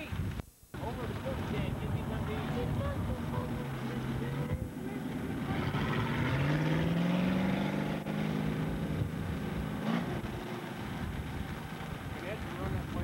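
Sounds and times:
racing engine accelerating: 0:03.4 - 0:12.2.

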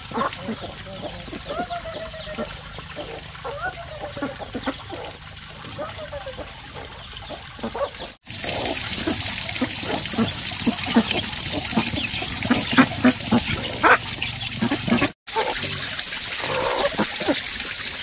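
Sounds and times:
chickens and ducks clucking: 0:00.0 - 0:15.6, 0:16.4 - 0:17.4
water trickling: 0:00.0 - 0:18.0
birds pecking grain: 0:07.1 - 0:15.6.

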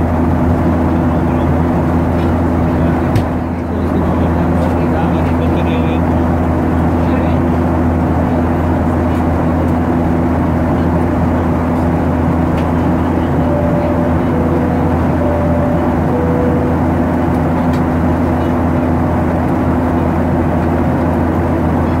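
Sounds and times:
jet engines droning: 0:00.0 - 0:22.0
low hum: 0:11.0 - 0:20.8
short faint tones: 0:13.0 - 0:17.7.

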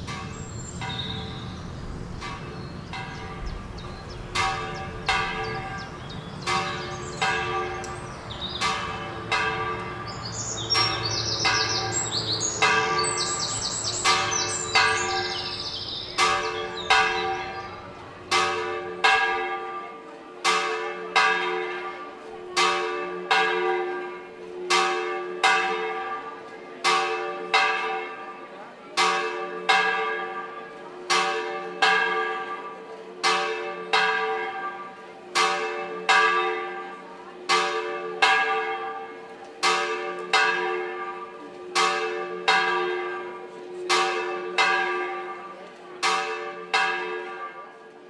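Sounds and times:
birds chirping: 0:00.0 - 0:18.0
church bells ringing: 0:00.0 - 0:48.0.

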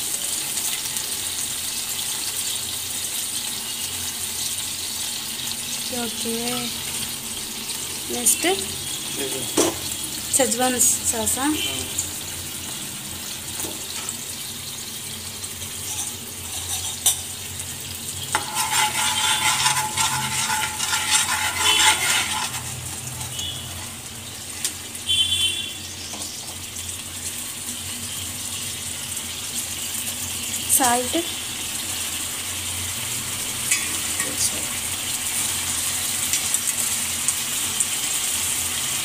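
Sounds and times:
sauce sizzling in oil: 0:00.0 - 0:39.0
metal spoon scraping a pan: 0:15.6 - 0:24.8, 0:33.7 - 0:34.6.

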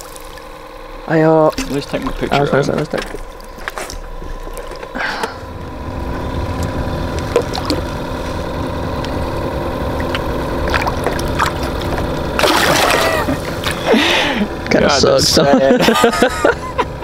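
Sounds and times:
water trickling: 0:00.0 - 0:00.7, 0:01.4 - 0:04.9
small motor humming: 0:00.0 - 0:17.0.

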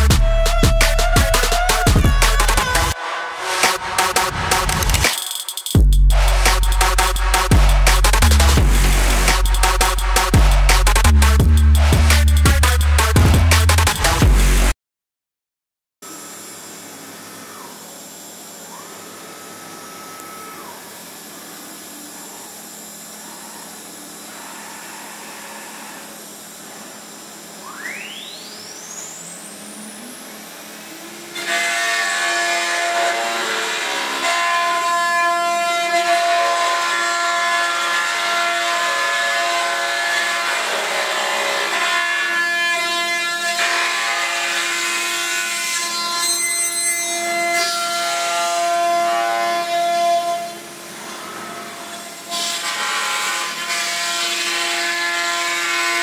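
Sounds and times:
milling cutting noise: 0:00.0 - 0:03.0, 0:16.1 - 0:27.8.

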